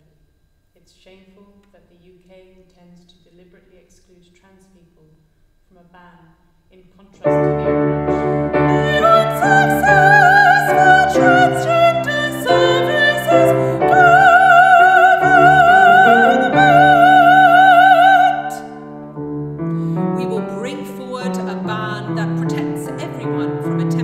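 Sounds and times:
operatic singing with vibrato: 0:07.2 - 0:19.2
piano chords: 0:07.2 - 0:24.0.

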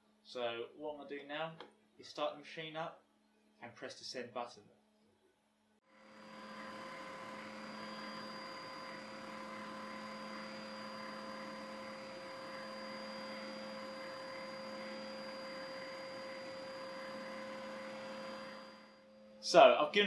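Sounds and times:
machine hum with whining tones: 0:05.9 - 0:19.9.

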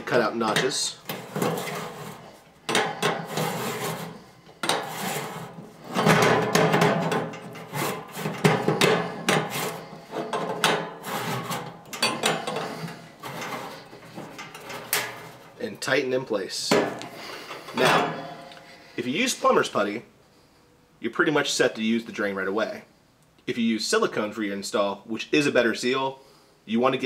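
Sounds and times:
metal scraping and knocking: 0:00.0 - 0:15.9, 0:16.6 - 0:18.8.

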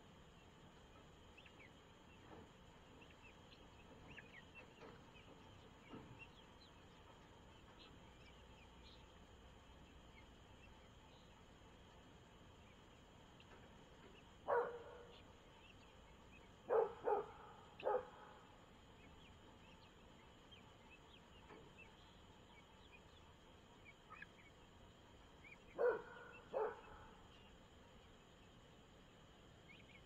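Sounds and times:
dog barking: 0:14.5 - 0:15.2, 0:16.7 - 0:18.3, 0:25.8 - 0:27.1.

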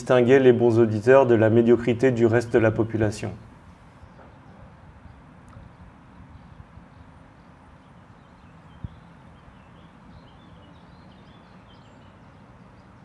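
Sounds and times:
faint bird chirps: 0:02.4 - 0:13.0.

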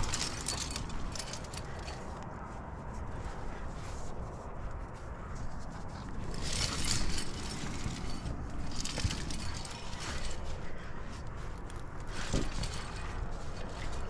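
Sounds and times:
gear scraping against rock: 0:00.0 - 0:02.2, 0:05.4 - 0:14.0
steady low rumble: 0:00.0 - 0:14.0.

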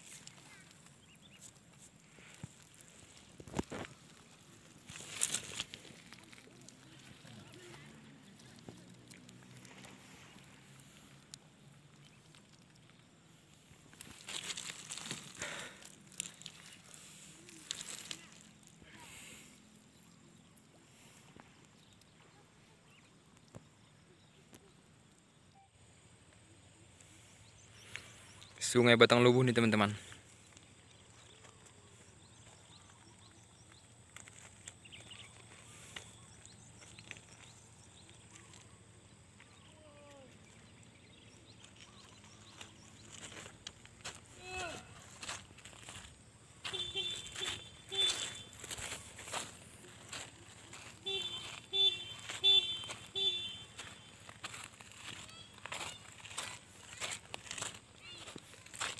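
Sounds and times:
fishing net rustling and crackling: 0:00.0 - 0:18.8.

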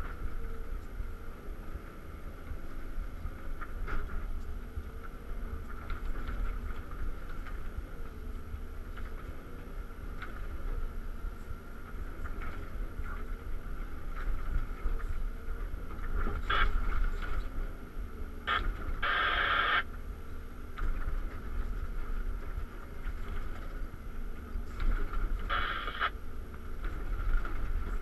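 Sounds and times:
steady whine: 0:00.0 - 0:28.0
diesel engine running: 0:15.4 - 0:28.0.

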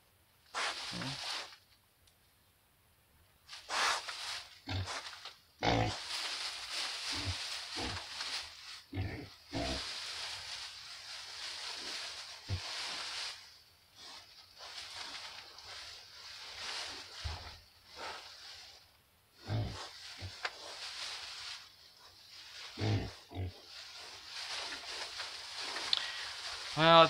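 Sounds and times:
pigs rustling in hay: 0:00.5 - 0:01.7, 0:03.4 - 0:27.0
pigs grunting: 0:05.6 - 0:06.1, 0:08.9 - 0:09.9, 0:19.4 - 0:20.4, 0:22.7 - 0:23.7.

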